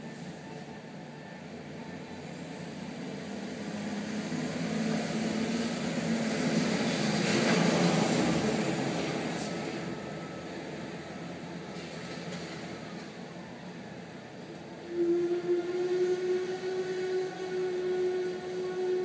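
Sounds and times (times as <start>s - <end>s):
truck passing by: 1.2s - 13.0s.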